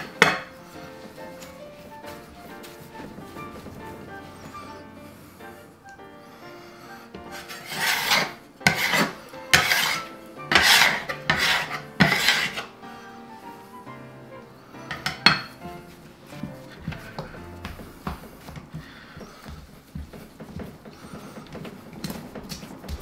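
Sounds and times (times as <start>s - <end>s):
scraper scraping dough off board: 7.3s - 12.7s.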